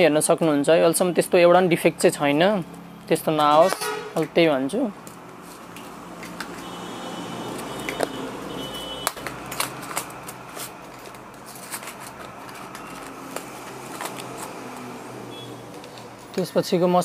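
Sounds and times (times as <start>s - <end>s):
plastic boxes clicking and rustling: 9.0s - 14.9s.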